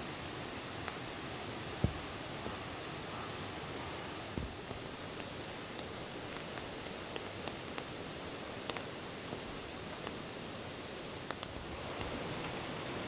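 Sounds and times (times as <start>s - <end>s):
steady outdoor hiss: 0.0s - 13.0s
faint ticks and clicks: 4.4s - 10.3s, 11.2s - 12.7s.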